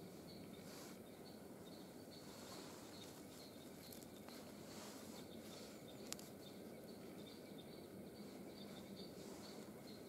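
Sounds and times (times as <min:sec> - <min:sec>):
faint high chirp: 0:00.0 - 0:10.0
handling sticks and cord: 0:02.3 - 0:06.4.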